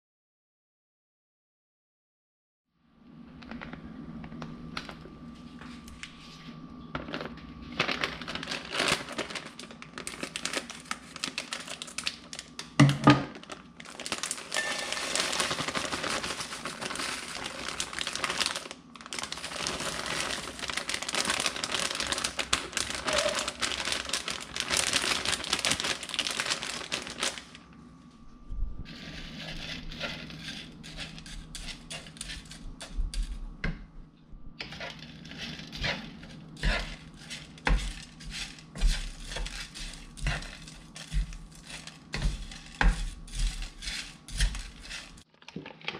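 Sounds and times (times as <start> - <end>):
plastic bag crinkling: 7.0 - 27.8, 34.6 - 45.9
frozen bits scattering onto pan: 7.1 - 27.6, 34.6 - 45.9
wooden spatula scraping pan: 28.9 - 33.4, 34.6 - 45.2.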